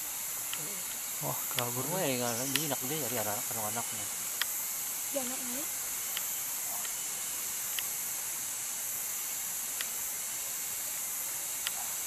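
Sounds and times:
forest insects droning: 0.0 - 12.0
faint ticks: 0.5 - 1.8, 2.4 - 3.3, 4.4 - 4.6, 6.1 - 7.0, 7.7 - 7.9, 9.7 - 10.0, 11.6 - 11.9.

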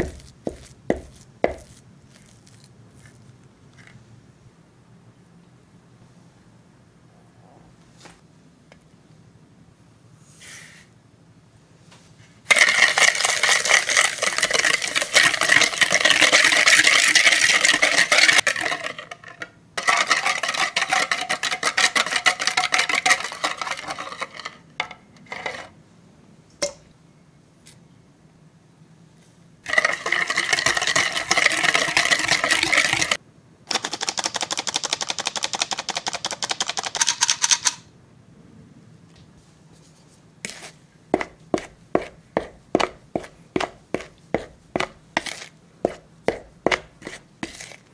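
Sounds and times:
spatula tapping in bowl: 0.0 - 1.8
whisk rattling against bowl: 12.5 - 24.6, 29.7 - 37.8.

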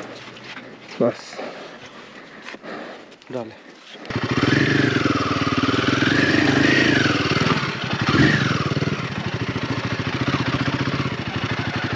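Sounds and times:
motorcycle engine revving: 4.0 - 11.9.

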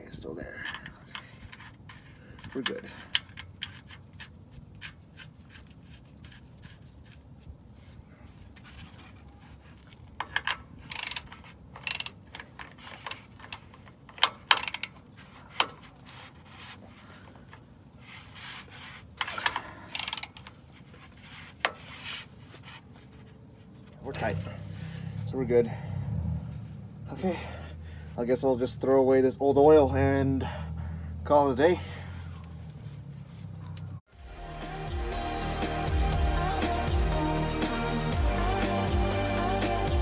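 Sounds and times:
socket ratchet clicking: 10.2 - 15.0, 19.3 - 20.5.

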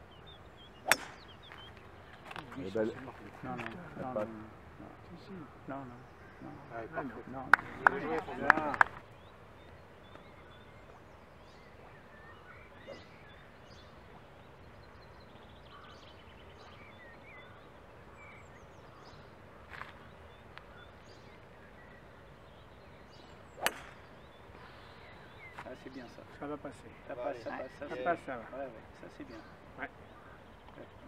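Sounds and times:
golf club striking ball: 0.8 - 1.4, 23.6 - 24.1
faint bird chirps: 9.1 - 26.2.

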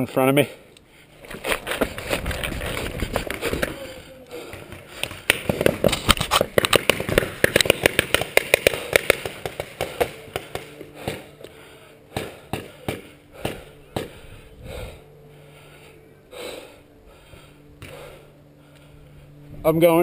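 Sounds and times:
paintball gun firing: 4.4 - 11.5, 12.1 - 14.2.

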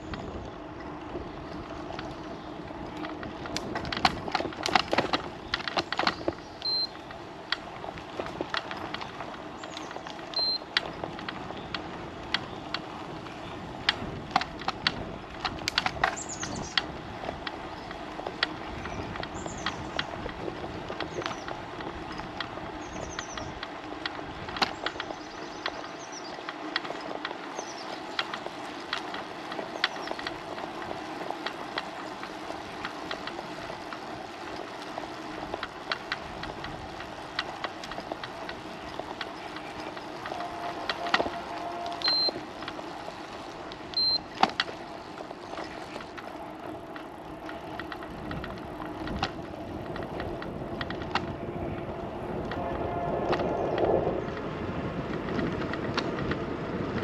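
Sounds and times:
tyres humming on road: 0.0 - 57.0
short high beeps: 42.0 - 42.4.

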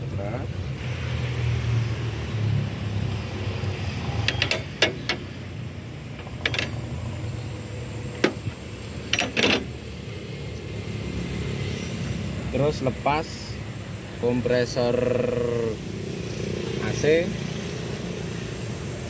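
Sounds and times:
metal wrench clicks: 4.2 - 5.4, 6.1 - 7.0, 8.2 - 9.7
short metallic rattle: 4.2 - 5.4, 6.2 - 6.9, 8.2 - 9.8.

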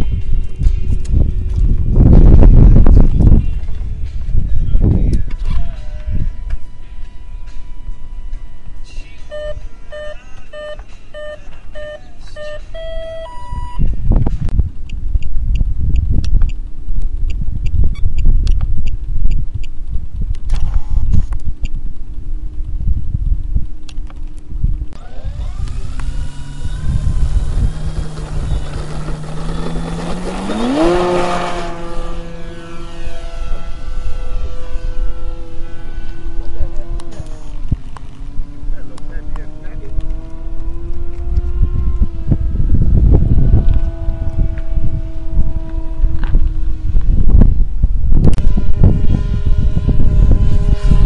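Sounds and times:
wind rumble on microphone: 0.0 - 9.8, 10.4 - 51.0
rising long beep: 6.2 - 13.9
short electronic beeps: 6.3 - 13.9
model airplane motor and propeller: 14.8 - 51.0.

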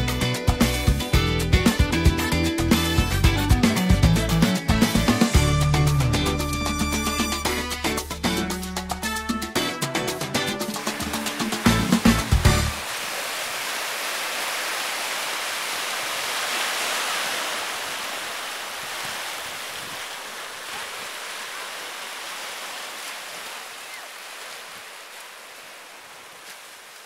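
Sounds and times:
ocean surf rushing: 9.6 - 27.0.

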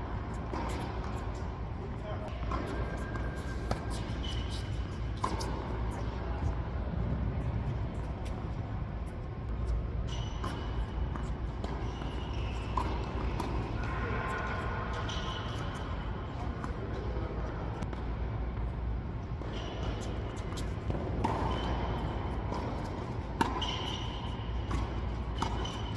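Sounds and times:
tennis balls struck and bouncing: 0.1 - 1.5, 2.2 - 6.6, 10.0 - 25.9
low rumble in hall: 4.8 - 10.0.

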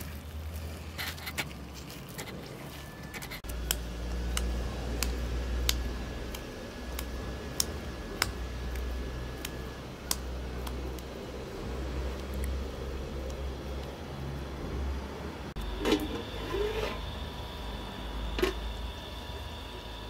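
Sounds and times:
steady low rumble: 2.2 - 16.4.

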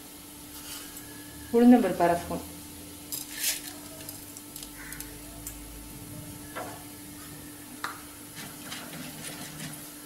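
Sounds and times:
hot oil sizzling in a pot: 0.0 - 10.0
wooden spatula stirring a pot: 8.3 - 10.0.

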